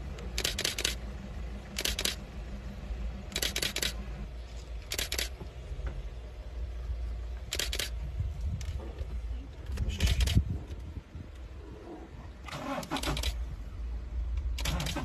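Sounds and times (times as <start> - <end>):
low steady rumble: 0.0 - 15.0
camera shutter clicking: 0.4 - 1.0, 1.8 - 2.2, 3.3 - 4.0, 4.9 - 5.3, 7.5 - 8.0, 12.8 - 13.4.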